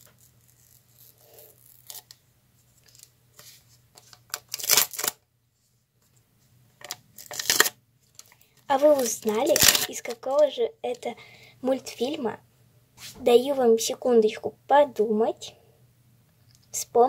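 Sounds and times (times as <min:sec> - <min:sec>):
paper packet tearing open: 0:00.0 - 0:02.2, 0:04.0 - 0:05.2, 0:07.2 - 0:10.4
paper packet rustling: 0:06.8 - 0:10.6.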